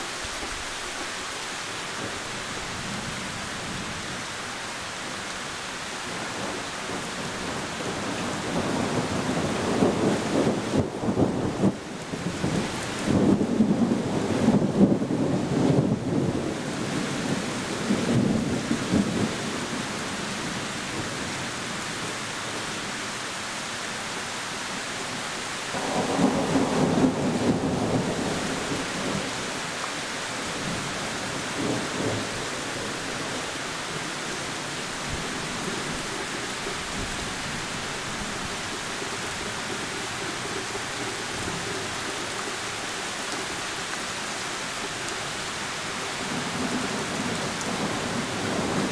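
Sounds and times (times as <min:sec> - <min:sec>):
heavy rain falling: 0:00.0 - 0:48.9
rolling thunder: 0:06.4 - 0:19.4, 0:25.7 - 0:29.4.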